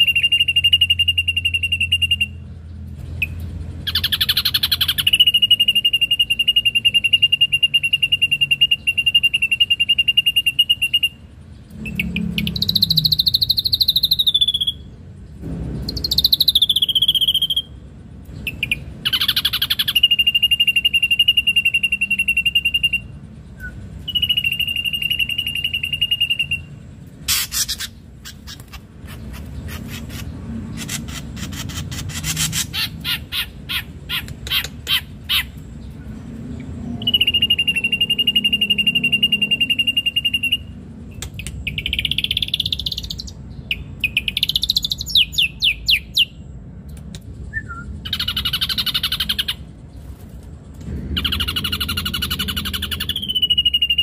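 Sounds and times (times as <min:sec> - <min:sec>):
bird whistled phrases: 0:00.0 - 0:02.4, 0:18.5 - 0:26.7, 0:37.0 - 0:40.7, 0:47.5 - 0:49.6, 0:51.2 - 0:54.0
sharp bird clicks: 0:27.2 - 0:36.0, 0:40.2 - 0:49.7.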